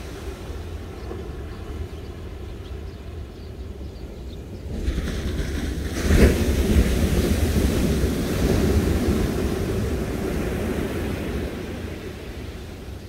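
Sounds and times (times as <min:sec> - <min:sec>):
wind buffeting microphone: 0:00.0 - 0:13.0
surf breaking on beach: 0:04.7 - 0:13.0.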